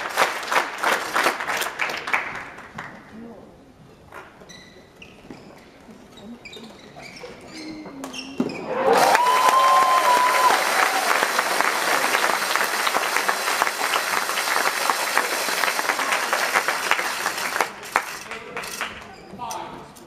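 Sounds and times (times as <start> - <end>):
crowd applause and cheering: 0.0 - 2.3, 8.6 - 18.4
long shout: 8.7 - 11.5.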